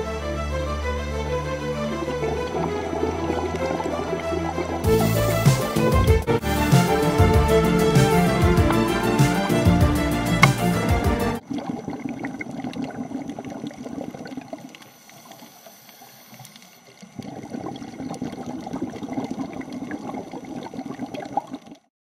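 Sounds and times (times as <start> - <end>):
underwater regulator bubbles: 11.4 - 21.9
faint crackle of small clicks: 12.6 - 18.3.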